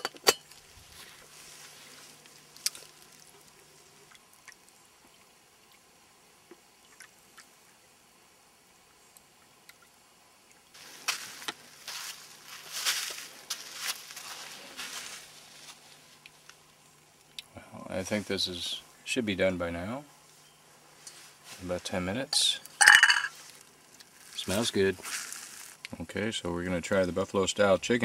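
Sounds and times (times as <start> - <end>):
faint ticks and drips: 2.2 - 7.8, 8.9 - 10.8
rustling and clattering of handling: 10.8 - 16.6, 22.8 - 25.8.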